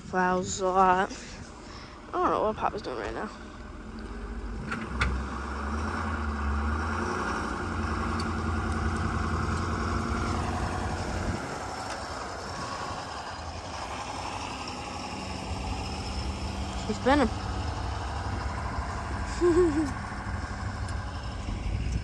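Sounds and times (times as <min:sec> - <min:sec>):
vehicle engine rumbling: 0:00.0 - 0:22.0.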